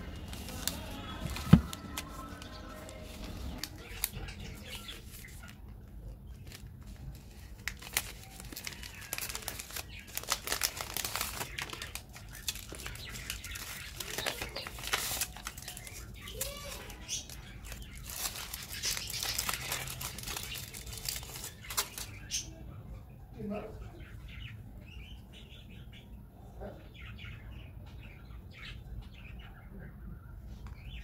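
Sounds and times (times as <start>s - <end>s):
wrapper crinkling and tearing: 0.0s - 5.6s, 6.3s - 22.4s.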